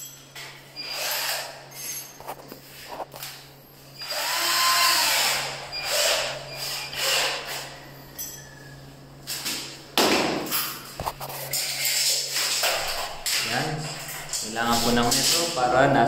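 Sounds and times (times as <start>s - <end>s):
cordless drill spinning: 0.8s - 1.5s, 4.0s - 7.4s.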